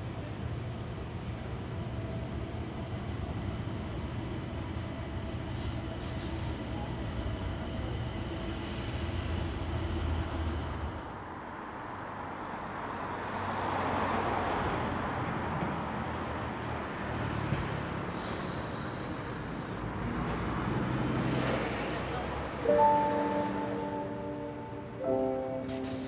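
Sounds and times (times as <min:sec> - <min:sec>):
traffic rumble: 0:09.4 - 0:26.0.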